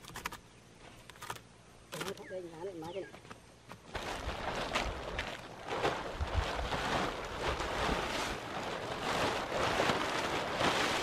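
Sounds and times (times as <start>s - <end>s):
plastic tarp rustling and crinkling: 3.8s - 11.0s.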